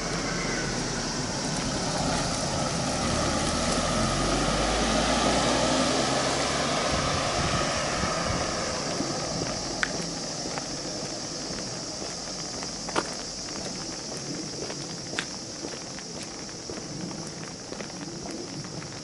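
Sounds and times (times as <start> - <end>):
vehicle passing by: 0.0 - 12.8.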